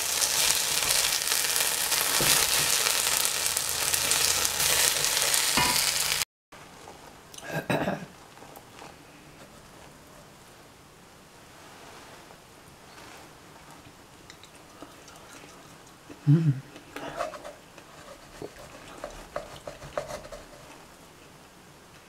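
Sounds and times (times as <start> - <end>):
batter sizzling in a frying pan: 0.0 - 6.3.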